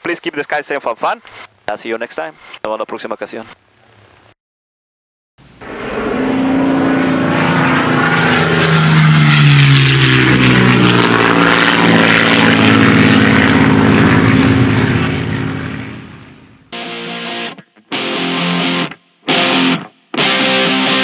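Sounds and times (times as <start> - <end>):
propeller airplane engine passing: 5.4 - 16.8.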